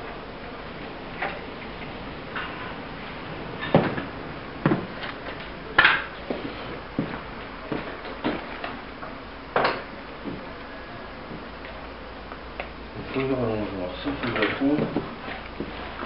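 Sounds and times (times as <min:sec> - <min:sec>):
footsteps on concrete floor: 0:03.7 - 0:05.6, 0:06.2 - 0:08.7, 0:10.2 - 0:10.6, 0:14.6 - 0:16.0.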